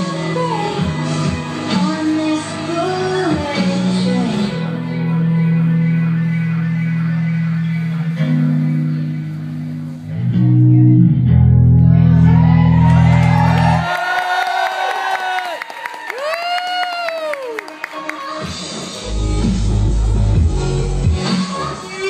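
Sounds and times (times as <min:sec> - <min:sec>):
deep bass notes: 0:05.1 - 0:13.7, 0:19.0 - 0:21.2.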